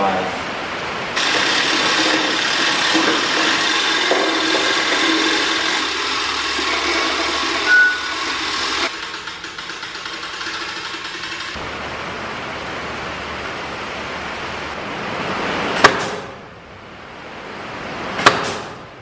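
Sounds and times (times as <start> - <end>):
hand-cranked winch clicking: 1.2 - 11.6
high squeak: 6.6 - 8.9.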